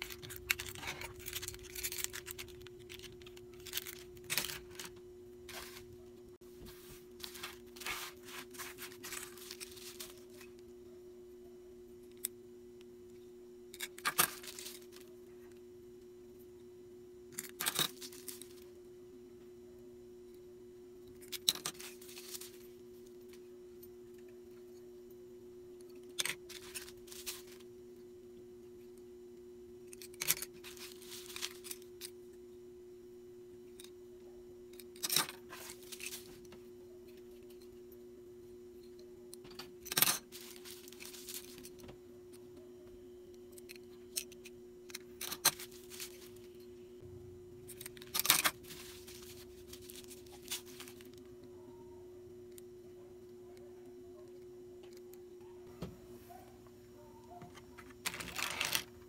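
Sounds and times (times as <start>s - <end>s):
packing materials rustling: 0.0s - 10.6s, 14.0s - 15.1s, 21.5s - 22.8s, 26.2s - 27.7s, 30.2s - 31.9s, 35.0s - 36.5s, 39.9s - 41.8s, 45.2s - 46.5s, 47.7s - 51.2s, 57.5s - 59.0s.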